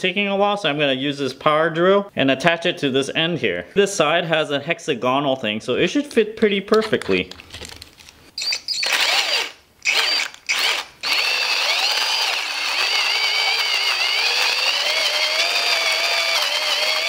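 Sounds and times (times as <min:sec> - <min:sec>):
drill whine: 0:08.4 - 0:17.0
coffee beans grinding: 0:09.9 - 0:17.0.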